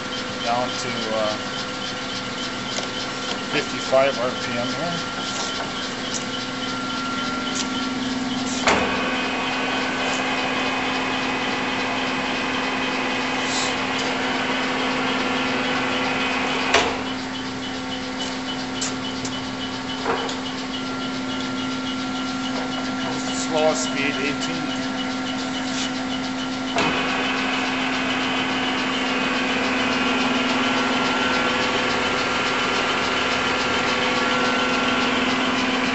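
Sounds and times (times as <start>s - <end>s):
lathe gear whine: 0.0s - 35.9s.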